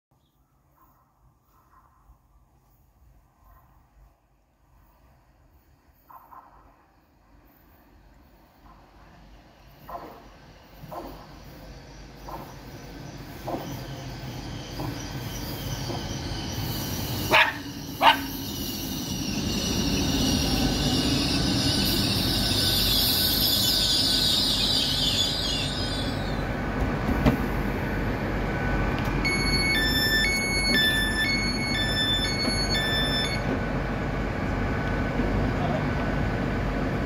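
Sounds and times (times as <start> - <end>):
train rumbling: 0.7 - 37.0
train brakes squealing: 4.8 - 26.6, 29.2 - 33.5
door button panel beeping: 29.2 - 33.4.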